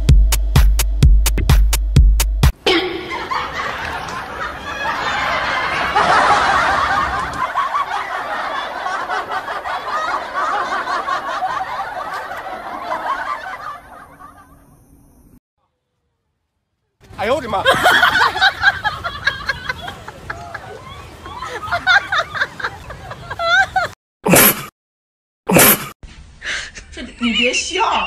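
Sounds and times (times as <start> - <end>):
people laughing and snickering: 2.6 - 14.7, 17.5 - 23.9.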